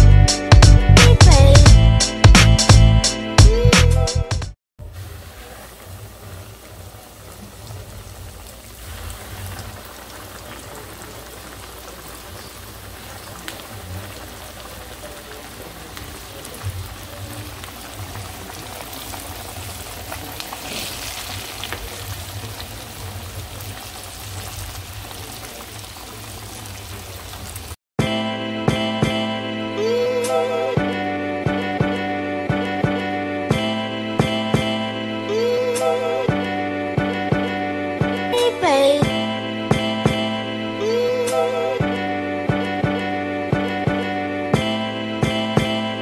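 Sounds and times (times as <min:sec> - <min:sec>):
chicken sizzling in hot oil: 0:04.8 - 0:27.8.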